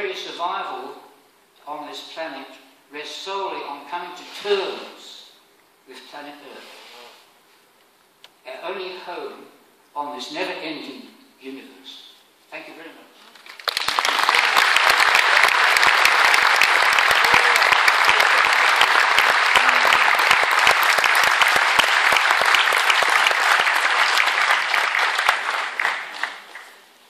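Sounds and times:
audience applauding: 13.3 - 26.9.

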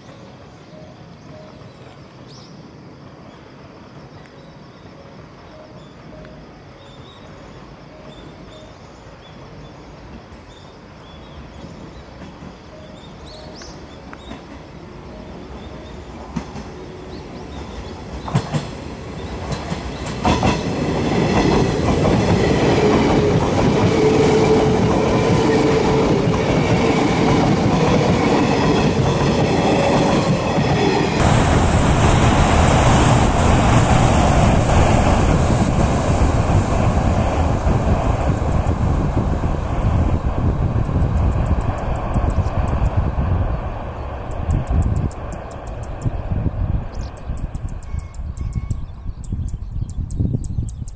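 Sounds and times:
train passing at high speed: 0.0 - 49.5.

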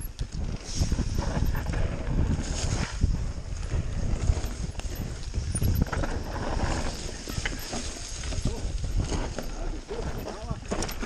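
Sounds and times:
bike rattling and knocking: 0.0 - 11.0
bike tyres over stones: 0.0 - 11.0.

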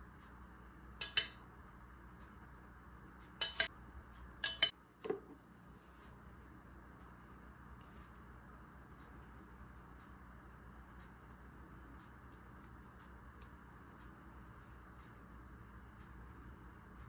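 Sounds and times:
spoon and dishes clinking: 4.4 - 4.7.

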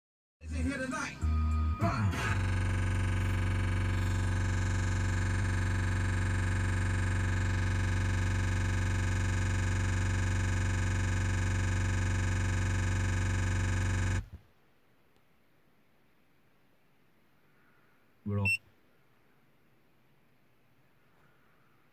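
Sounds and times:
electrical buzz-hum from speaker: 2.1 - 14.4.

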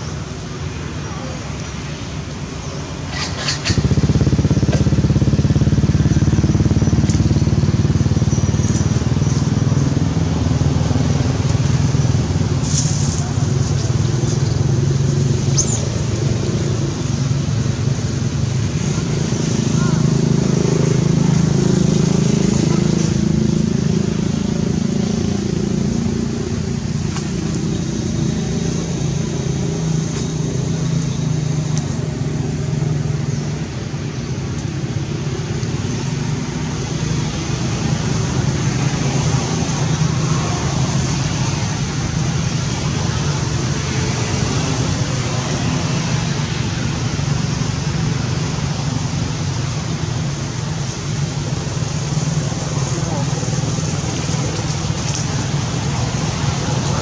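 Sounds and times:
engine droning: 0.0 - 57.0.

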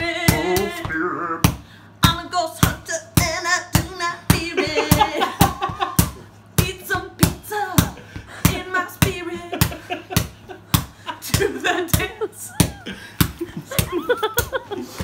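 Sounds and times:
woman singing: 0.0 - 1.0, 2.0 - 5.7, 6.6 - 9.8
rhythmic hand slaps: 0.0 - 15.0.

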